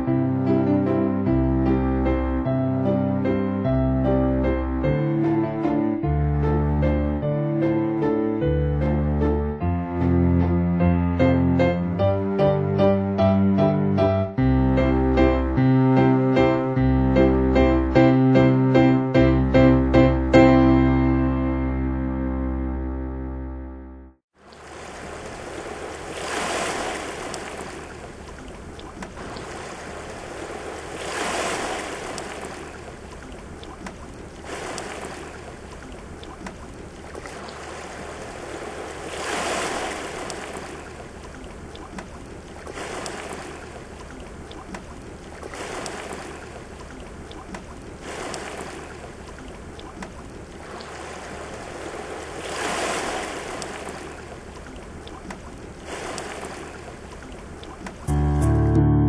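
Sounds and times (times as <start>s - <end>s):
surf breaking on rocky shore: 29.2s - 32.8s.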